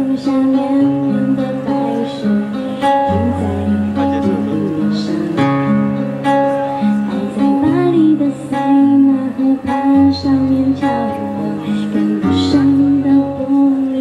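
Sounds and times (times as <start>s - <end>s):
pop song instrumental: 0.0s - 14.0s
strummed acoustic guitar: 0.0s - 14.0s.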